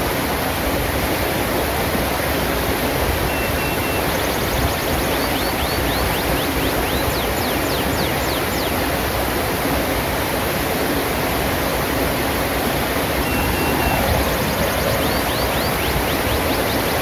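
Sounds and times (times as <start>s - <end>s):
stream rushing over rocks: 0.0s - 17.0s
bird whistling falling notes: 13.2s - 17.0s.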